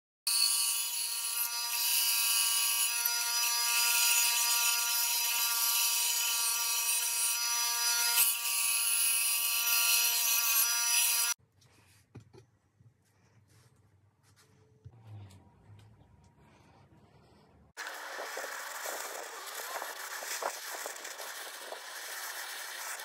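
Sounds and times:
band saw cutting wood: 0.3 - 11.4, 17.8 - 23.0.

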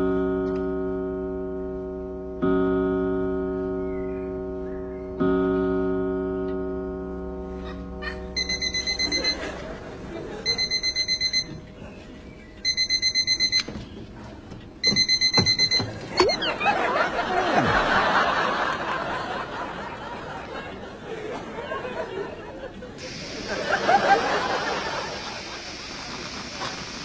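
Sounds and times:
alarm clock beeping: 8.4 - 9.6, 10.4 - 11.6, 12.6 - 13.8, 14.8 - 16.9
studio audience laughter: 9.0 - 10.7, 16.3 - 26.8
alarm clock click: 12.7 - 13.7, 14.8 - 16.4.

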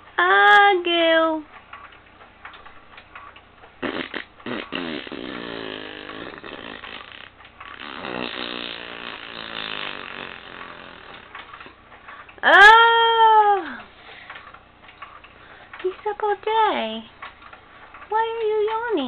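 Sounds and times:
baby vocalizing raspily: 3.8 - 11.3.

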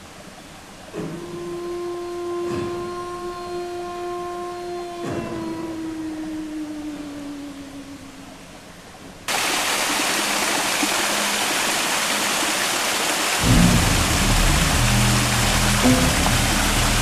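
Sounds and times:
low steady tones: 0.0 - 9.3, 9.9 - 17.0
water rushing down waterfall: 9.3 - 17.0.

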